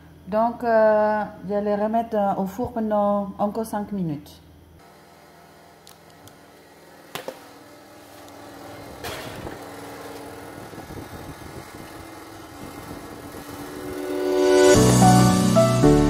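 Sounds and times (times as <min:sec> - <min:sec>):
steady running hum: 0:04.8 - 0:16.0
music: 0:13.6 - 0:16.0.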